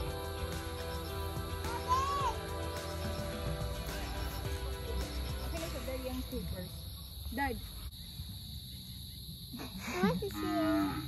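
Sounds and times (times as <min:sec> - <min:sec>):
background music: 0:00.0 - 0:07.0.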